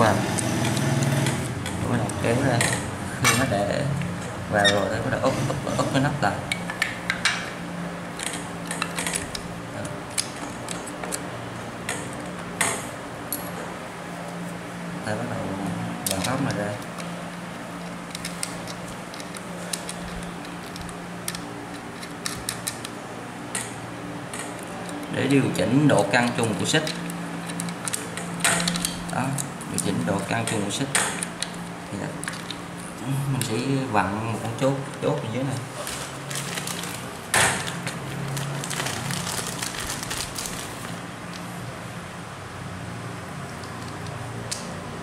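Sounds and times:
steady low hum: 0.0 - 45.0
metal parts clicking and rattling: 8.2 - 11.2, 17.8 - 23.8, 26.0 - 32.8, 35.8 - 41.5.

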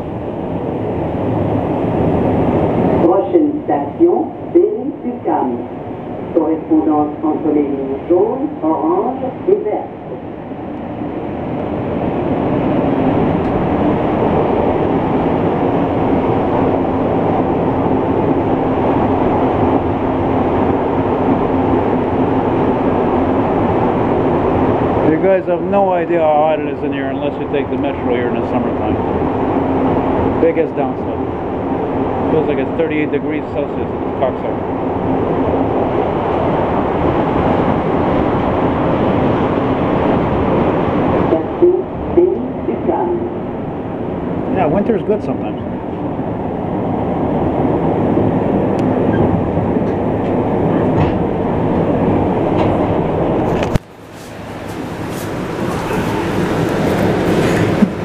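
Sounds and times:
metro train running rumble: 0.0 - 58.0.

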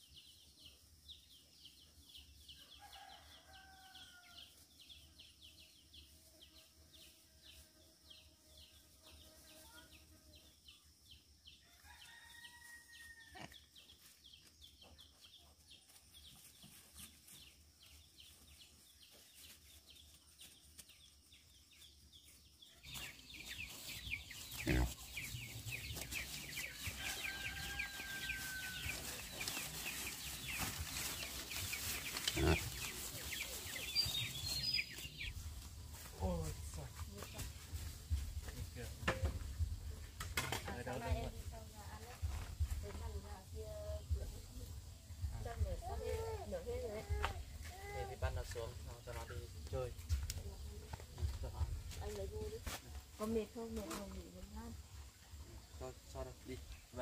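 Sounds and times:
chickens clucking: 23.0 - 36.1.

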